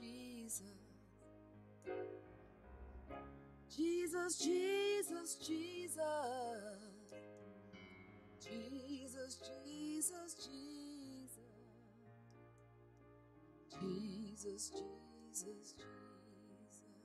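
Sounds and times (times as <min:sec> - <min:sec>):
woman singing gospel: 0:00.0 - 0:00.8, 0:03.8 - 0:07.1, 0:13.8 - 0:16.8
electronic keyboard chords: 0:01.4 - 0:03.8.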